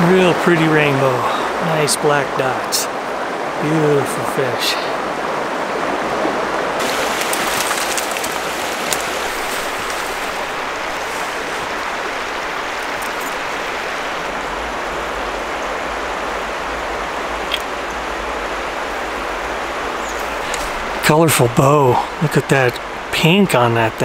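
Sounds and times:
river water flowing: 0:00.0 - 0:24.0
faint clicks: 0:17.5 - 0:17.7.

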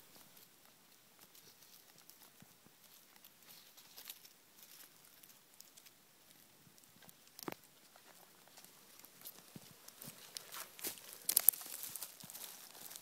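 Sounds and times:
dry leaves crackling: 0:00.0 - 0:13.0
small ticks: 0:00.4 - 0:13.0.

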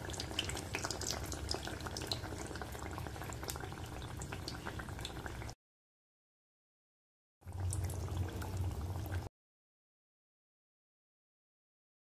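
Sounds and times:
deep-frying sizzle with crackling pops: 0:00.0 - 0:05.6.

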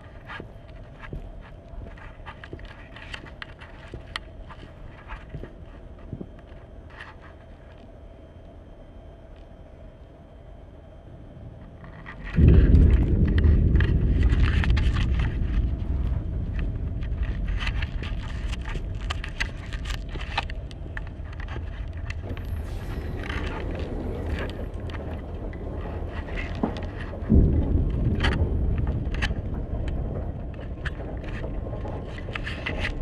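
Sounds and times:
deep rumble: 0:11.0 - 0:33.0
dense crackling: 0:11.8 - 0:33.0.

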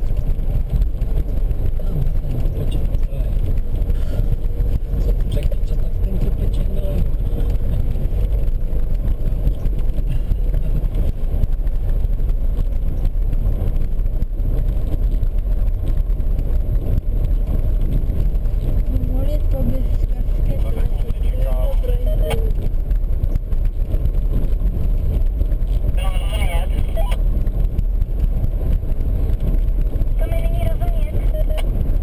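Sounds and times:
car engine and tyre rumble: 0:00.0 - 0:32.0.

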